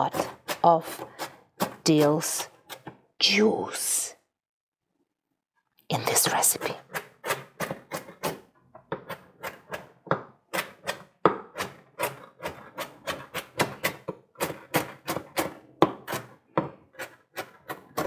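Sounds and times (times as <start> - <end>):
knife chopping on cutting board: 0.0 - 3.0, 6.6 - 18.0.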